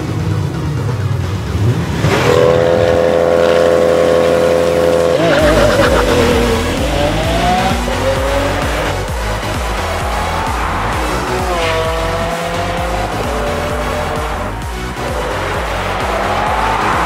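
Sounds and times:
race car engines revving: 0:00.0 - 0:17.0
tyres squealing: 0:05.2 - 0:17.0.

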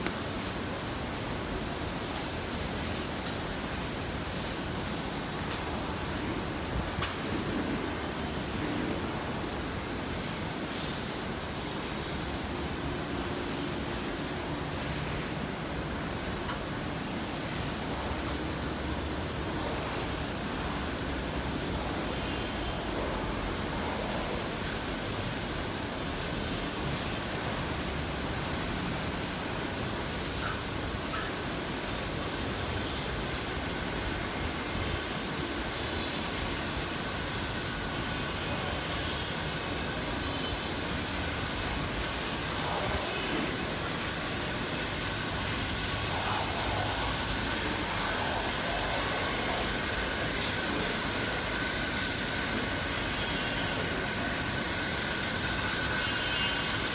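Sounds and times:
ceiling fans rushing: 0:00.0 - 0:56.9.

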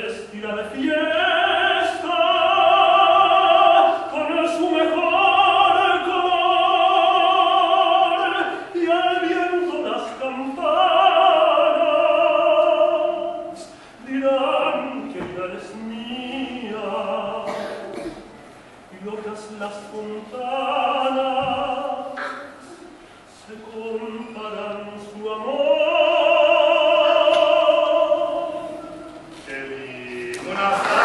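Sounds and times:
man singing operatically: 0:00.0 - 0:18.0, 0:18.9 - 0:22.2, 0:23.3 - 0:31.0.

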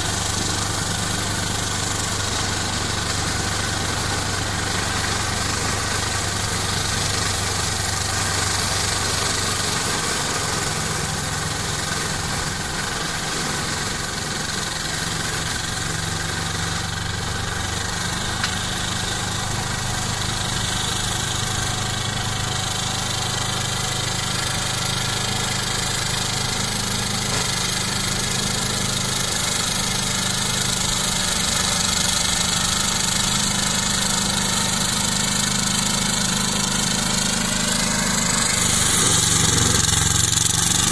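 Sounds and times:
tractor diesel engine running: 0:00.0 - 0:40.9.

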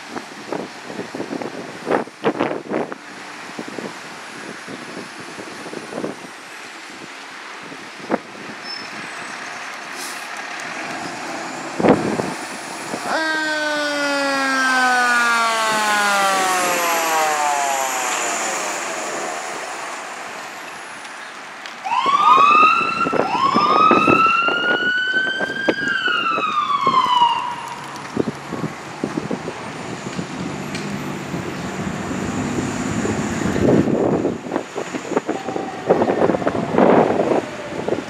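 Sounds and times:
vehicle noise: 0:00.0 - 0:38.0
fire engine siren wailing: 0:10.6 - 0:38.0.

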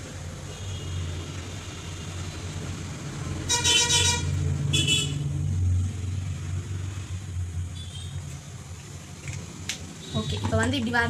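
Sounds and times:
vehicle horn toots: 0:03.5 - 0:05.2.

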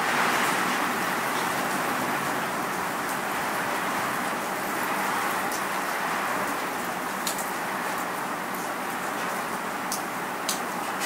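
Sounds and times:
raindrops ticking: 0:09.9 - 0:10.7.

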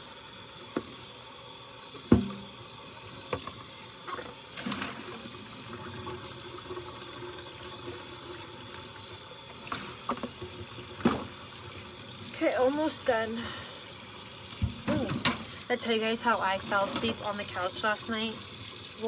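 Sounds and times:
tap running into a sink: 0:00.6 - 0:01.1, 0:01.9 - 0:02.6, 0:03.2 - 0:05.2, 0:09.5 - 0:11.8, 0:14.5 - 0:15.6.

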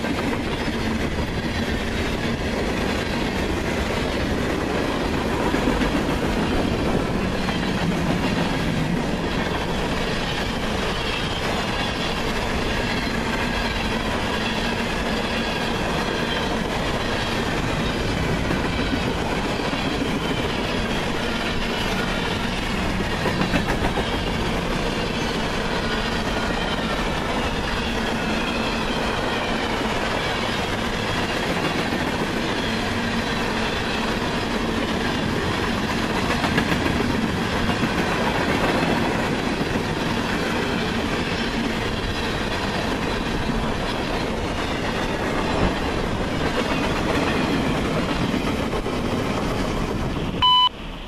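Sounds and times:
freight train rumbling past: 0:00.0 - 0:51.0
short electronic beep: 0:50.4 - 0:50.8.

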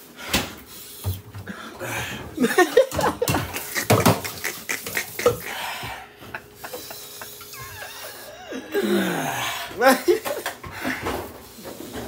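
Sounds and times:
plastic bottles clattering: 0:01.4 - 0:05.5
man groaning and whimpering: 0:07.8 - 0:10.1.

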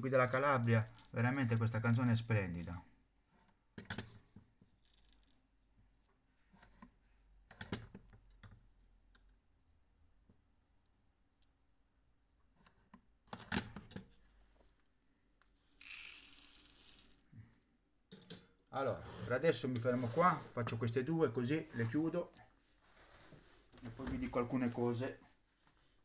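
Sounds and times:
shot pellets rattling into metal pan: 0:15.6 - 0:17.2.

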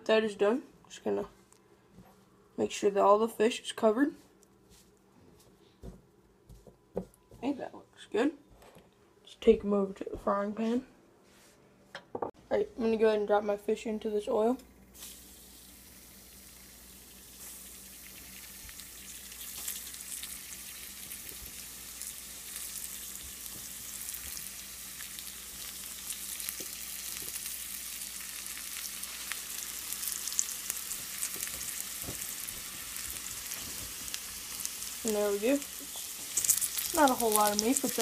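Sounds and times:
fish frying in hot oil: 0:15.0 - 0:38.0.

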